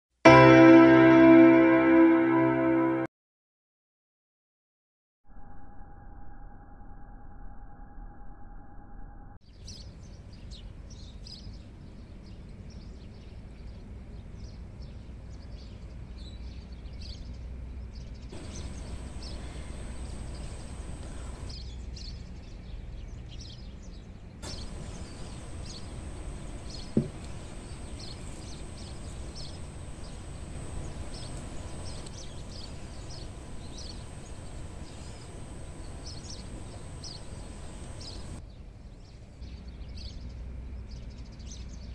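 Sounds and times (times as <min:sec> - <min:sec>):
low steady rumble: 0:17.6 - 0:21.6, 0:24.4 - 0:41.2
birds chirping: 0:18.3 - 0:21.6, 0:24.4 - 0:38.4.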